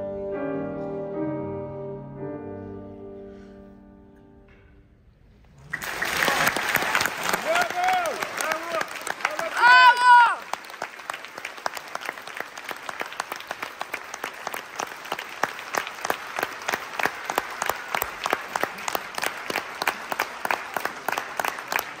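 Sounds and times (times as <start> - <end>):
audience applauding: 5.5 - 22.0
loud claps close to microphone: 5.6 - 22.0.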